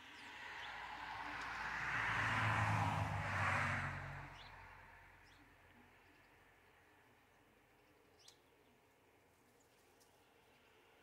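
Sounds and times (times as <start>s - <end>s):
vehicle driving past: 0.0s - 5.2s.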